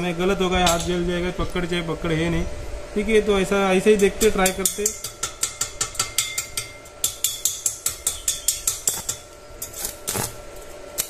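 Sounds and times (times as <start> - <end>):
welding electrode clicking and snapping: 3.9 - 11.0.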